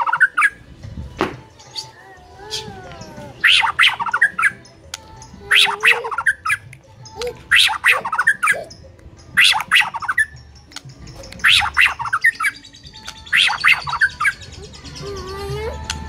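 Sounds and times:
songbird singing fast runs: 3.4s - 16.0s.

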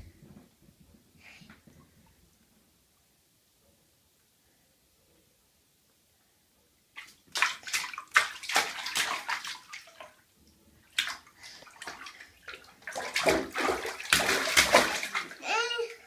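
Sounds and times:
water splashing in bathtub: 6.9s - 16.0s.

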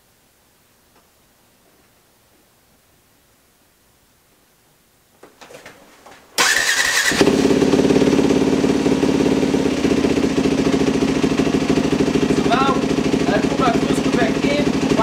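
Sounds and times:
dirt bike engine cranking: 6.4s - 9.2s
dirt bike engine idling: 6.4s - 15.0s.

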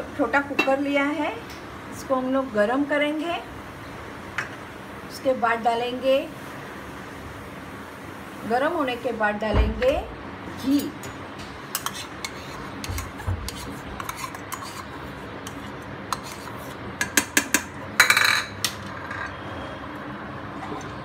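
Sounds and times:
metal spoon scraping bowl: 11.7s - 17.3s.

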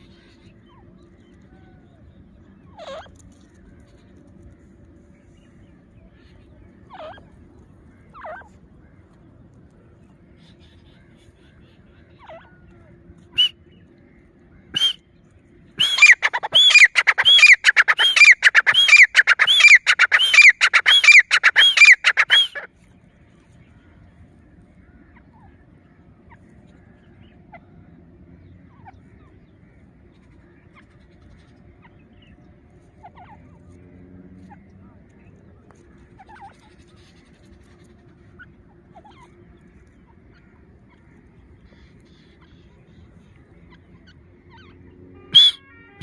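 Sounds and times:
francolin calling: 14.7s - 15.0s, 15.8s - 22.7s, 44.0s - 45.7s.

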